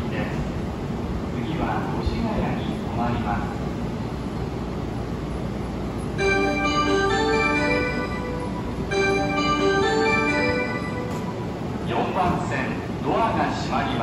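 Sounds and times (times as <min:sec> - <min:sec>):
steady low hum: 0:00.0 - 0:14.0
bell-like electronic chime melody: 0:06.2 - 0:11.6.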